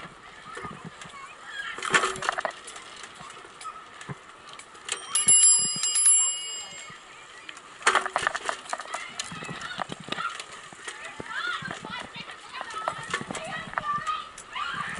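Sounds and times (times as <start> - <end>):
bicycle bell ringing: 4.9 - 7.2.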